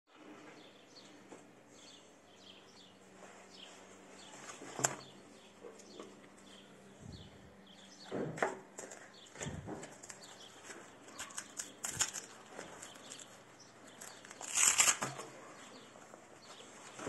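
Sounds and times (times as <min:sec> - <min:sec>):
small birds chirping: 0:00.2 - 0:17.0
paper leaflet rustling: 0:08.8 - 0:15.3.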